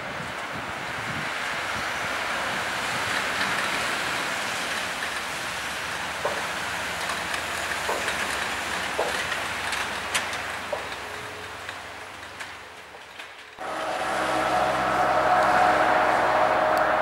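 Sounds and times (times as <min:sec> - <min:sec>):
truck engine and tyres rumbling: 0:00.0 - 0:17.0
log bunks and crane clanking: 0:05.1 - 0:17.0.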